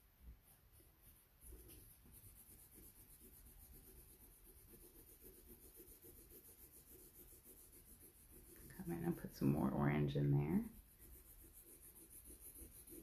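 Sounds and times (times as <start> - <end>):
colored pencil shading on paper: 0.4 - 13.0.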